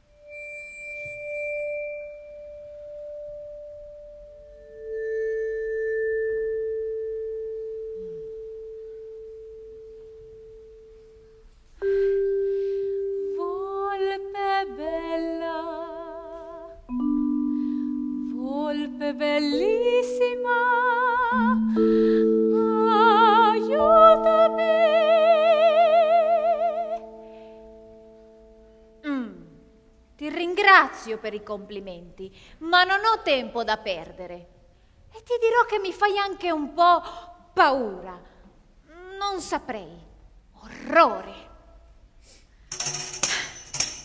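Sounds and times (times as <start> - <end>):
woman singing with vibrato: 13.3 - 16.9, 18.4 - 27.1
vibraphone notes ringing: 16.7 - 20.6.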